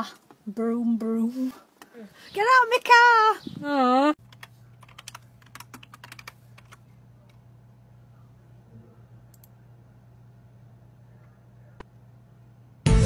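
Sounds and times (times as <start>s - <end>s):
low steady hum: 0.0s - 12.9s
keyboard typing: 4.2s - 6.8s.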